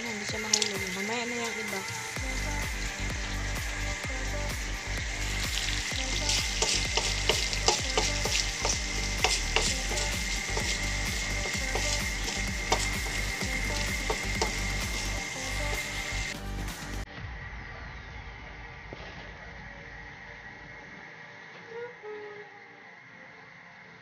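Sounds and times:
meat sizzling in a pan: 0.0 - 16.4
oil popping and crackling: 0.0 - 16.4.

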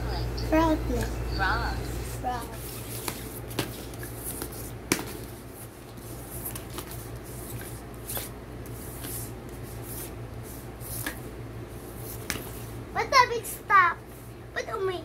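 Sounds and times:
paper rustling: 2.5 - 11.2.

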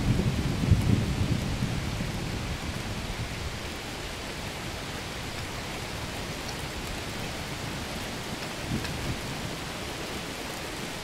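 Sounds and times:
low rumble of thunder: 0.0 - 4.4
steady rain: 0.0 - 11.0.

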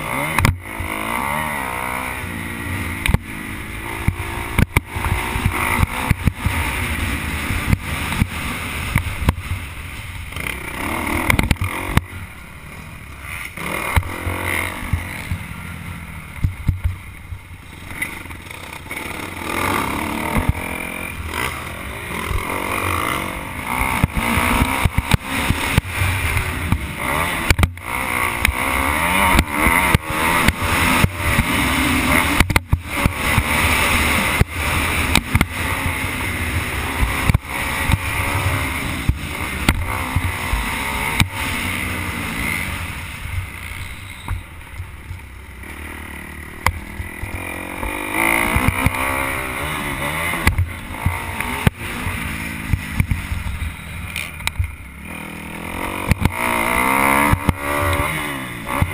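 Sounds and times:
motocross bike engine revving: 0.0 - 58.9
sharp knocks from rough track: 0.3 - 1.0, 3.0 - 3.3, 4.0 - 6.6, 11.2 - 12.1, 13.3 - 15.5, 20.2 - 20.6, 23.8 - 36.0, 37.0 - 38.4, 39.0 - 42.0, 46.6 - 54.8, 55.9 - 58.9.

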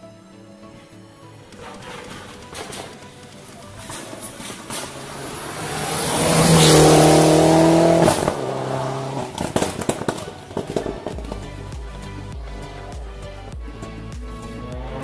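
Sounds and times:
exhaust crackles: 1.4 - 11.7
rally car engine howling: 1.6 - 11.6, 14.3 - 15.0.

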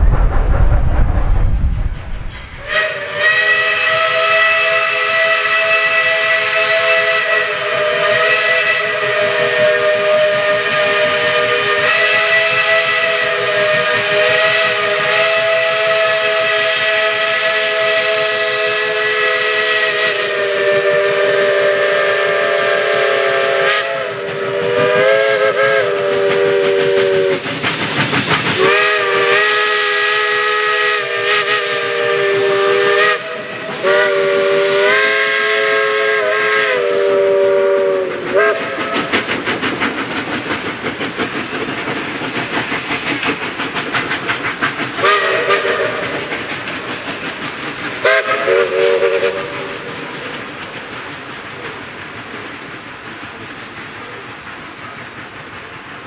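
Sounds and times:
train running with rapid beats: 0.0 - 56.0
steam locomotive chime whistle: 2.6 - 27.4, 28.6 - 39.1, 45.0 - 46.3, 48.0 - 49.8.

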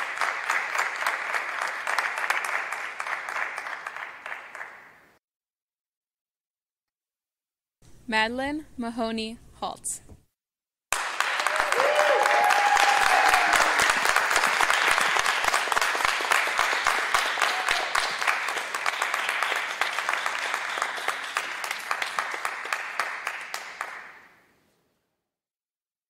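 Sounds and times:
audience applauding: 0.0 - 5.1, 10.9 - 24.4.

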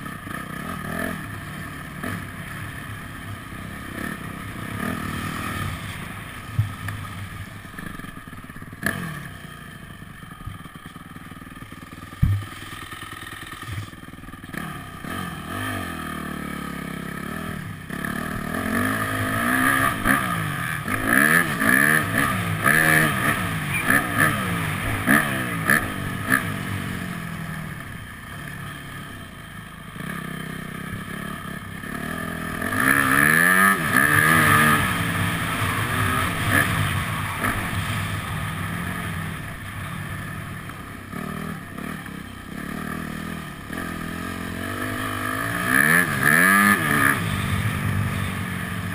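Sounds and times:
motocross bike engine revving: 0.0 - 48.9
sharp knocks: 12.2 - 12.6.

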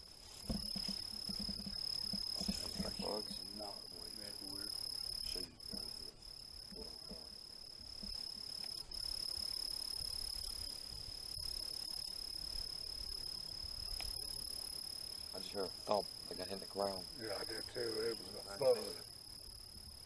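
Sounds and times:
night insects trilling: 0.0 - 20.0.

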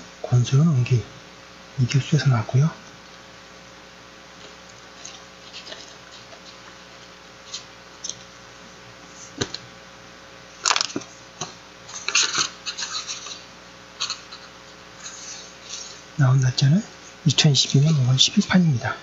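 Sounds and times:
book pages rustling: 4.4 - 8.3, 9.1 - 9.7, 10.6 - 16.1.

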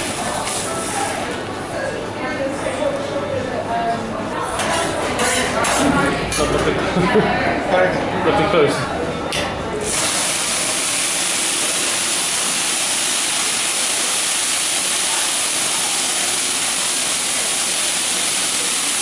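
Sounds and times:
flame hissing: 9.9 - 19.0
liquid sizzling on hot grill: 9.9 - 19.0.

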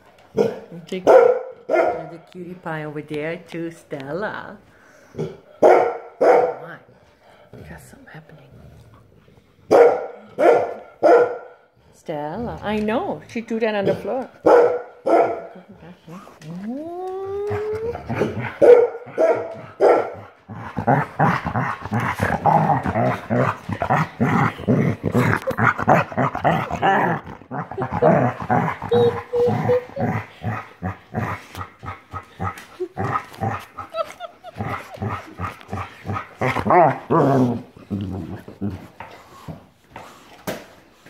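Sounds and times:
dogs growling: 6.8 - 39.8
dogs yipping and barking: 17.7 - 20.2, 27.8 - 30.5.

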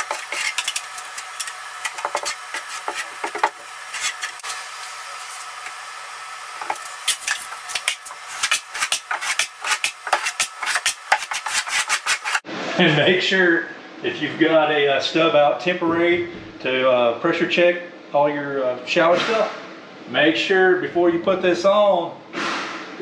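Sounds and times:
trowel scraping mortar: 0.0 - 5.5, 6.6 - 12.4.

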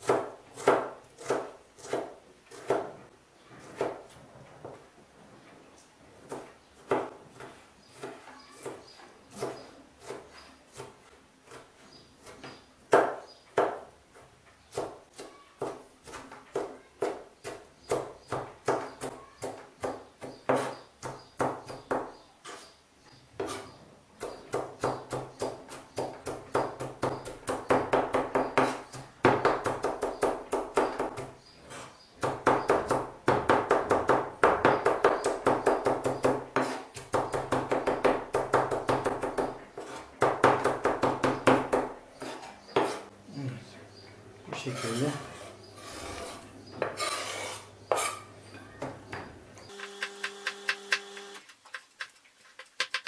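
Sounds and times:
knife chopping on cutting board: 0.0 - 2.9.

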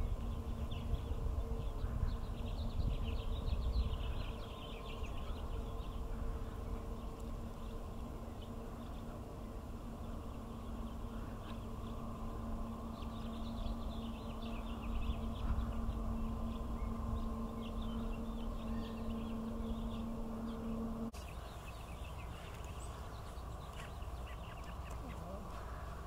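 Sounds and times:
steady hum: 0.0 - 26.0
goslings peeping: 10.0 - 26.0.

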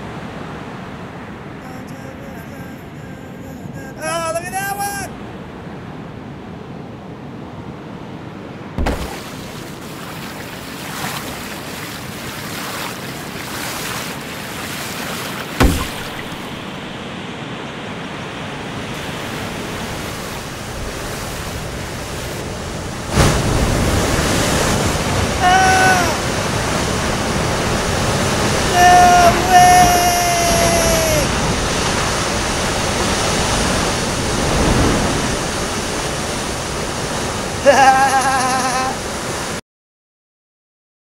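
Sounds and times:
ocean surf washing: 0.0 - 39.6
sharp thumps: 8.8 - 9.3, 15.6 - 17.0
short pitched cry: 25.4 - 26.2, 28.7 - 31.4.

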